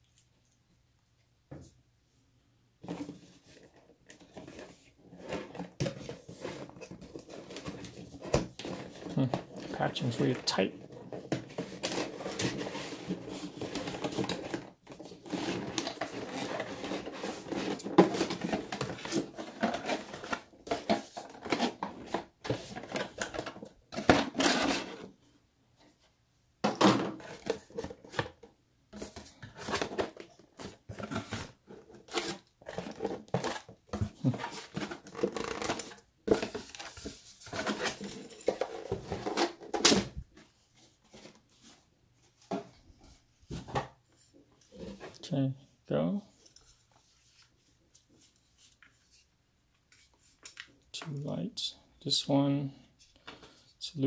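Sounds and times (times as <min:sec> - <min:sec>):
cardboard scraping and rustling: 0:02.8 - 0:25.2, 0:29.0 - 0:45.2.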